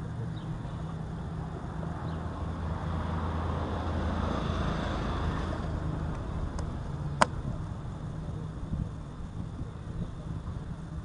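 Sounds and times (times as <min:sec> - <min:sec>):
low outdoor rumble: 0:00.0 - 0:11.0
sharp click: 0:06.1 - 0:07.4.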